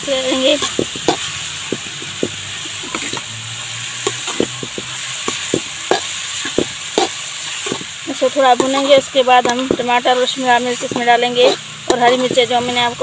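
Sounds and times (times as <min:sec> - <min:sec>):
food sizzling: 0:00.0 - 0:13.0
spatula scraping metal pan: 0:00.1 - 0:13.0
spatula knocking against pan: 0:00.6 - 0:03.2, 0:04.0 - 0:07.1.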